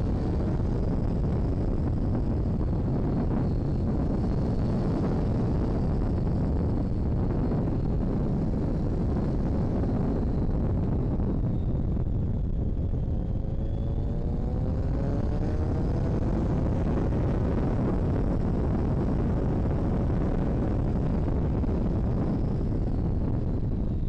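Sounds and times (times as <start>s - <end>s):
wind rushing on microphone: 0.0s - 24.0s
motorcycle engine accelerating: 13.0s - 19.6s.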